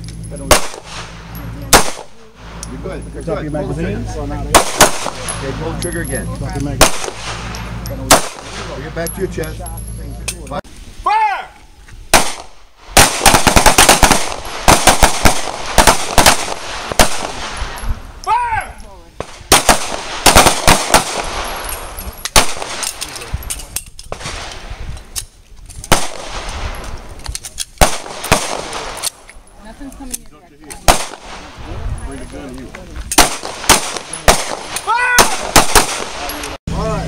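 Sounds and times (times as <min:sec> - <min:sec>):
pistol shots: 0:00.5 - 0:02.3, 0:04.5 - 0:05.6, 0:06.8 - 0:08.8, 0:12.1 - 0:17.8, 0:19.2 - 0:23.2, 0:25.8 - 0:26.8, 0:27.8 - 0:29.3, 0:30.7 - 0:31.5, 0:33.1 - 0:36.5.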